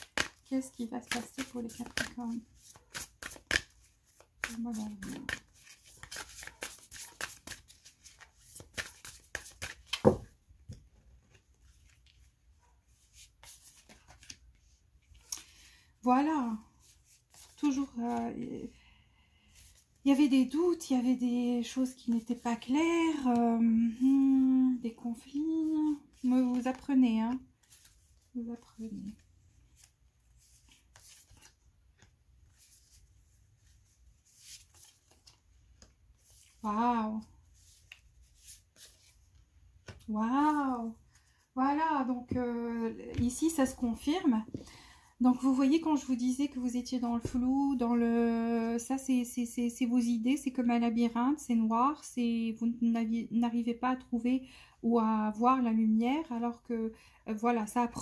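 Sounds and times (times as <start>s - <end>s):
cards being shuffled: 0.0s - 12.3s, 13.0s - 15.5s, 16.8s - 17.6s, 25.6s - 36.6s, 37.5s - 39.2s, 39.8s - 40.1s.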